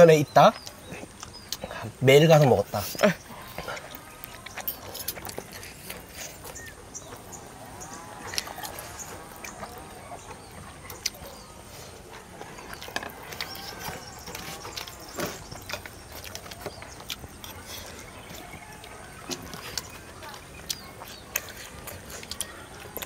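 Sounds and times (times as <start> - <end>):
chewing: 0.5 - 23.0
animal calls: 2.4 - 23.0.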